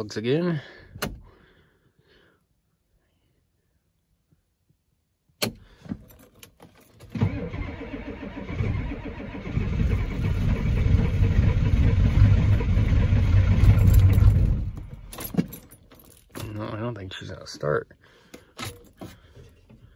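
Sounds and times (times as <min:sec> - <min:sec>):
diesel engine cranking: 0:07.0 - 0:16.8.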